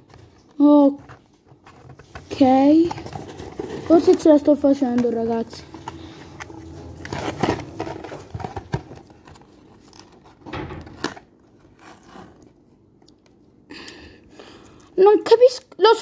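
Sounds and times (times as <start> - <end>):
cardboard box scraping and crinkling: 1.6 - 10.1
packing tape shredding: 5.7 - 12.5.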